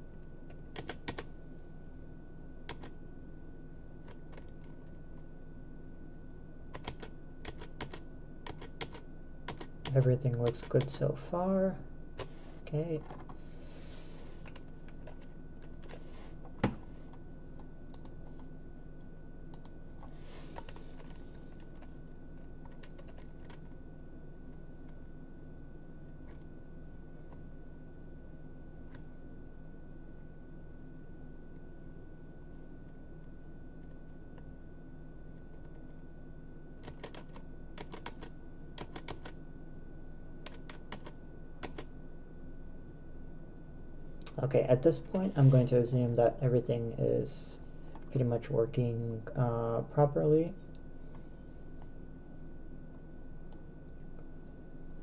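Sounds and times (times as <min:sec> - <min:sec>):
steady low hum: 0:00.0 - 0:55.0
computer keyboard keystrokes: 0:00.7 - 0:01.3, 0:02.7 - 0:02.9, 0:04.1 - 0:04.8, 0:06.7 - 0:10.9, 0:17.9 - 0:18.4, 0:22.6 - 0:23.6, 0:36.8 - 0:39.4, 0:40.4 - 0:41.9.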